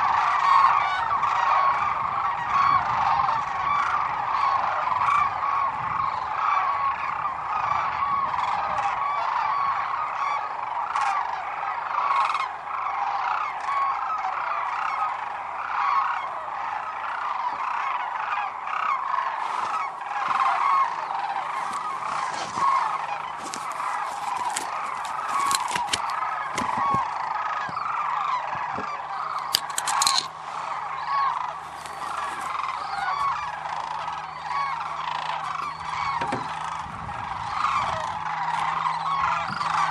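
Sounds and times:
flock of cranes calling: 0.0s - 39.9s
sharp clicks: 23.8s - 26.8s, 29.3s - 30.4s.

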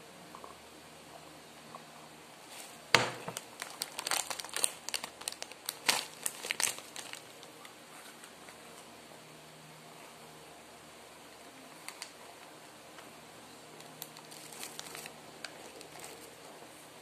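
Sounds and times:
plastic wrapper tearing and crinkling: 3.3s - 7.5s, 11.8s - 12.5s, 13.8s - 16.4s.

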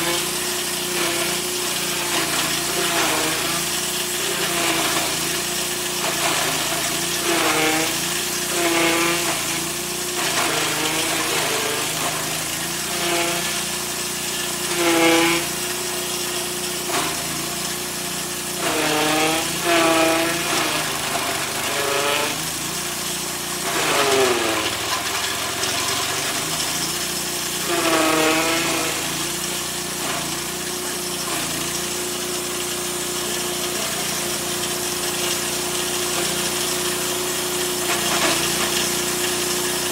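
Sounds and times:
blades shredding grass: 0.0s - 13.6s, 14.6s - 15.5s, 18.6s - 29.5s
grass chopper engine running: 0.0s - 39.9s.

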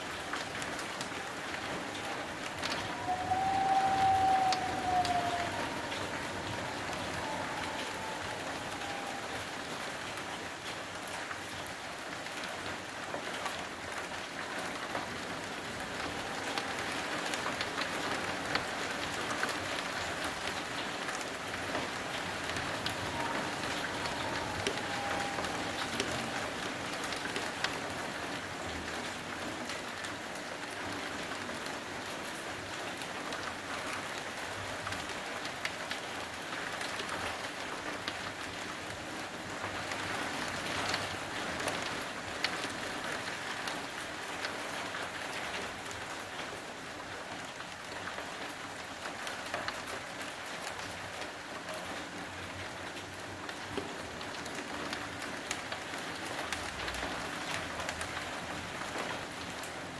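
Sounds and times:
raindrops ticking: 0.0s - 31.4s
steady rain hiss: 0.0s - 59.9s.

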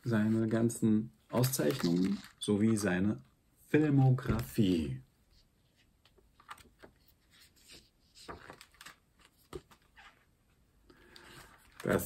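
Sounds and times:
paper pages rustling: 1.4s - 2.4s, 5.7s - 10.3s, 11.1s - 12.0s.

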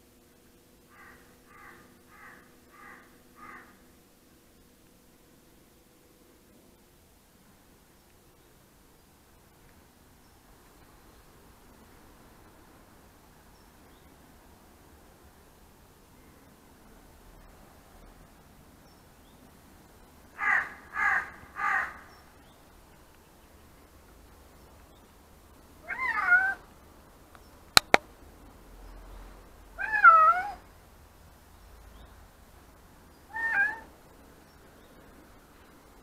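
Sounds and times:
sharp clicks: 27.8s - 28.0s
cat meowing: 29.8s - 30.6s, 33.3s - 33.9s.

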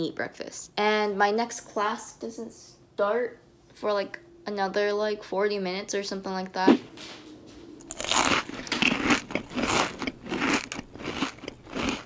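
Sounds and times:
person chewing crunchy food: 7.8s - 12.0s.

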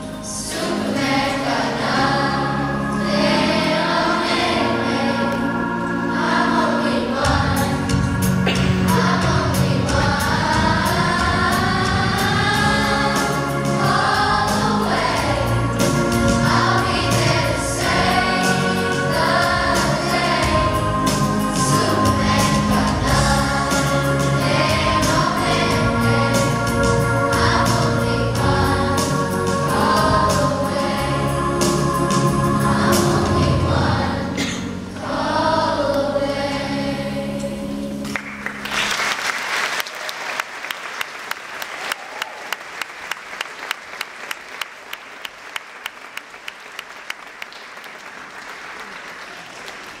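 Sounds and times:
children's choir singing: 0.0s - 39.0s
audience applause: 38.1s - 50.0s.

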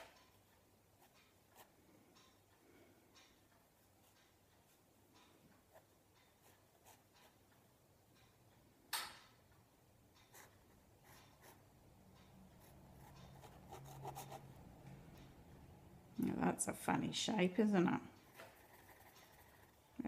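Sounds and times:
pen scratching on paper: 12.6s - 14.4s, 18.3s - 19.8s.

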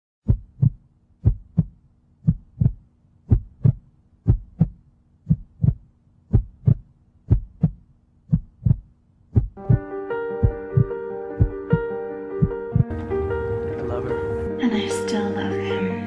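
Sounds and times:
heartbeat thumps: 0.2s - 13.4s.

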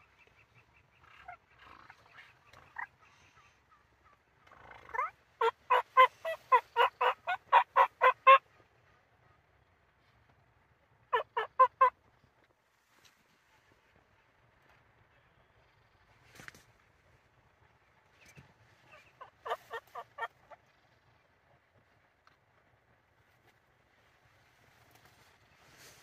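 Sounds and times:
turkey yelping: 4.8s - 8.4s, 11.1s - 11.9s, 18.9s - 20.6s.

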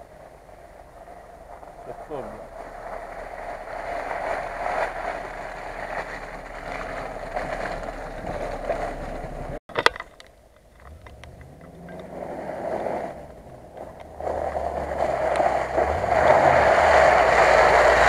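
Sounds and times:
vehicle driving through mud: 0.0s - 9.6s, 10.8s - 18.0s.

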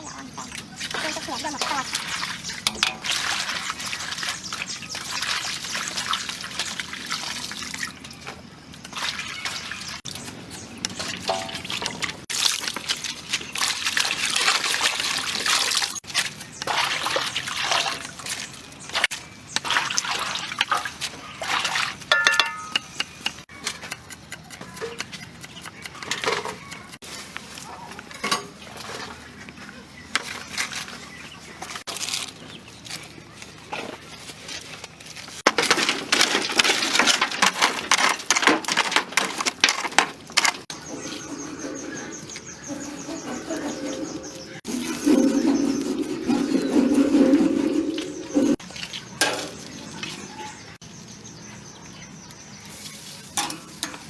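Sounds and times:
water sloshing and dripping: 0.0s - 22.8s, 28.2s - 29.4s, 43.4s - 50.3s.

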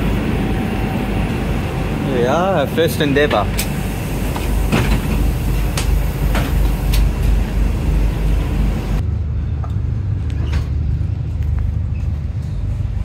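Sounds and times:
train engine drone and rumble: 0.0s - 13.0s.

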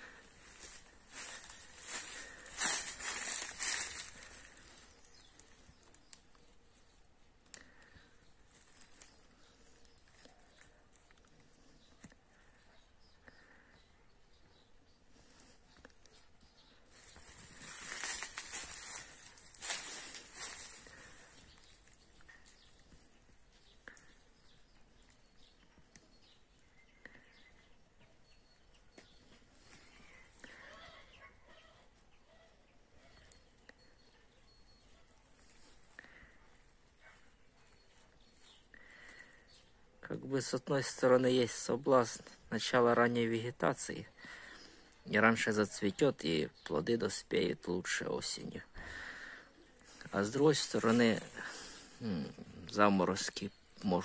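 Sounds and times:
dry leaves rustling: 0.0s - 6.0s, 16.9s - 22.6s, 49.9s - 51.9s
faint bird chirps: 0.0s - 54.0s.

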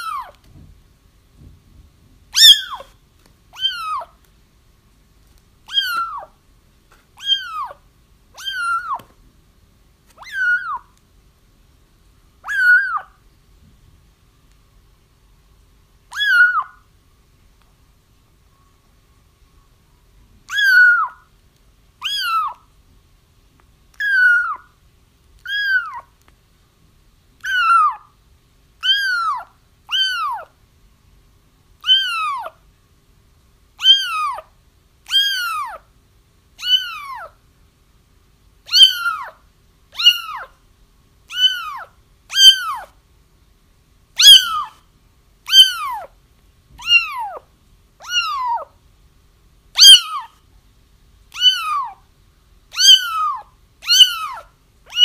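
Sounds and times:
kittens meowing: 0.0s - 0.4s, 2.4s - 2.9s, 3.5s - 4.2s, 5.7s - 6.4s, 7.2s - 7.8s, 8.4s - 9.1s, 10.2s - 10.9s, 12.4s - 13.2s, 16.1s - 16.8s, 20.5s - 21.2s, 22.0s - 22.6s, 24.0s - 24.7s, 25.4s - 26.1s, 27.4s - 28.1s, 28.8s - 30.5s, 31.8s - 32.6s, 33.8s - 34.5s, 35.1s - 35.8s, 36.6s - 37.4s, 38.7s - 39.4s, 40.0s - 40.5s, 41.3s - 43.0s, 44.2s - 44.8s, 45.5s - 46.1s, 46.8s - 48.7s, 49.8s - 50.3s, 51.3s - 52.0s, 52.7s - 55.0s.

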